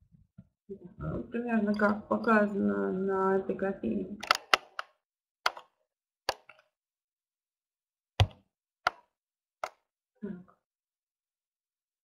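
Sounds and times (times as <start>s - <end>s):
computer mouse clicks: 4.2s - 6.7s.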